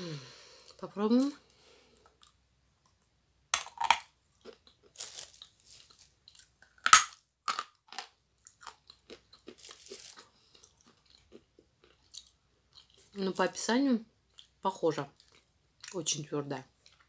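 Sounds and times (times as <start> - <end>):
chewing with crunching clicks: 7.6 - 13.2, 14.3 - 16.0, 16.8 - 17.0.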